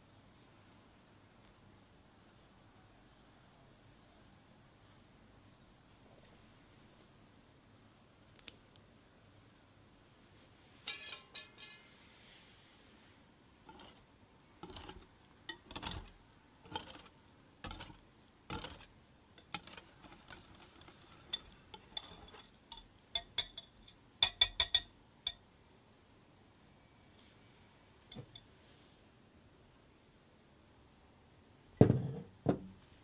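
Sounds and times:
whisk clinking against glass bowl: 17.7s - 25.4s.

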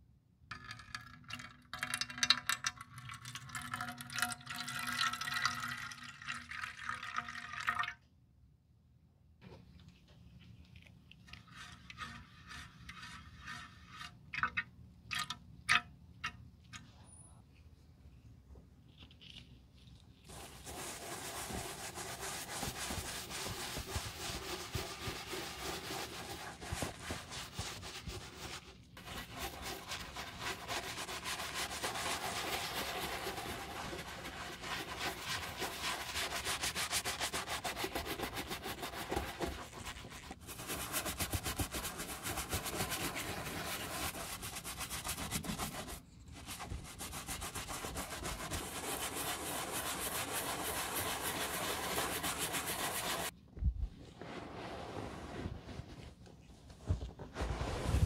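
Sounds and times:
brush scrubbing leather boot: 20.3s - 53.3s.

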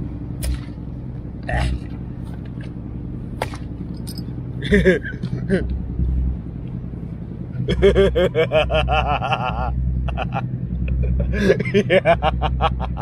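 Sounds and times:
man laughing hard: 4.6s - 5.7s, 7.6s - 13.0s.

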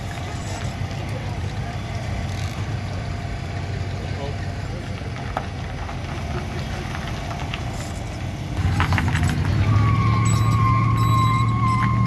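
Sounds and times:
tyres squealing on concrete: 0.0s - 2.7s, 6.1s - 12.0s
van engine idling and revving: 0.0s - 12.0s.

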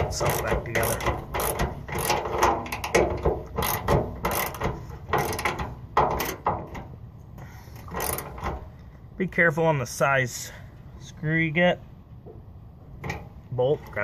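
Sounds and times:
ratcheting wrench clicking: 0.0s - 6.5s, 7.8s - 8.6s.

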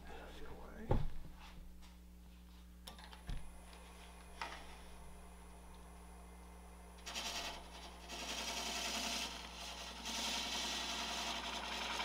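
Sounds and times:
turning tool scraping wood: 7.0s - 12.0s
wood lathe motor hum: 7.0s - 12.0s.

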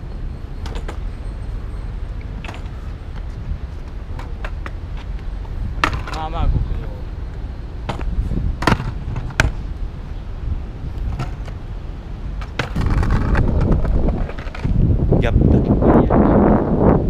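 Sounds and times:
skateboard wheels rolling: 0.1s - 15.1s
skateboard clacking on stone: 2.4s - 2.8s, 5.8s - 6.4s, 7.9s - 9.6s, 12.4s - 14.8s.

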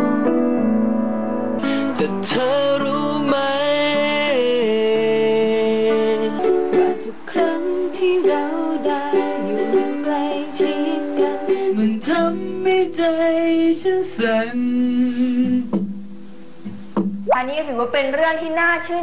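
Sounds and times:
acoustic guitar: 0.0s - 17.3s
ukulele strumming: 1.6s - 14.3s, 15.2s - 17.3s
woman singing: 5.2s - 15.7s.

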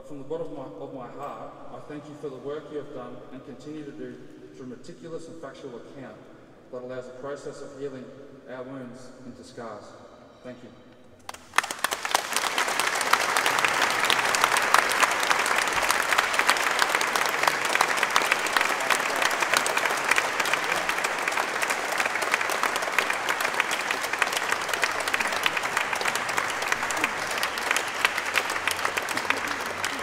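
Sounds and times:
audience applauding: 11.3s - 30.0s.

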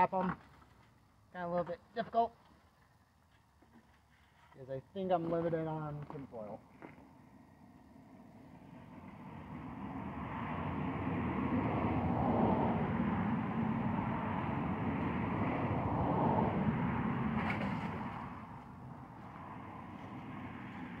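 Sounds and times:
motor vehicle passing: 7.1s - 21.0s.

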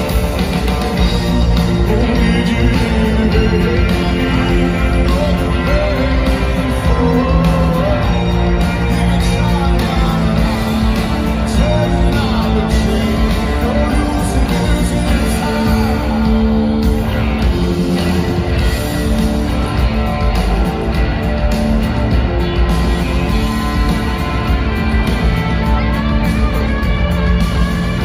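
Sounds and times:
live rock band playing: 0.0s - 28.0s
person singing: 1.0s - 18.7s.

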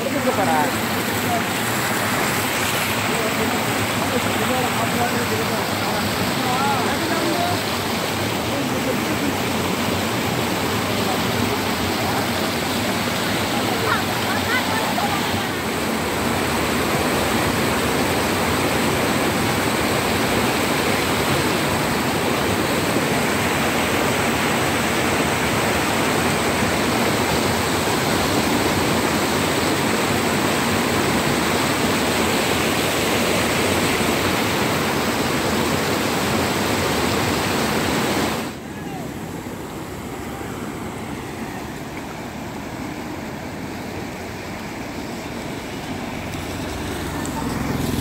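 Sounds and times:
floodwater rushing: 0.0s - 48.0s.

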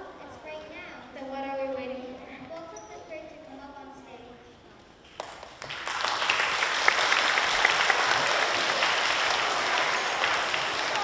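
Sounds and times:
audience applauding: 5.2s - 11.0s.

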